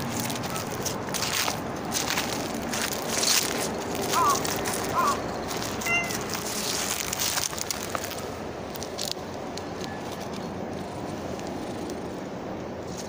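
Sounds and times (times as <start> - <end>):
dry leaves rustling: 0.0 - 13.0.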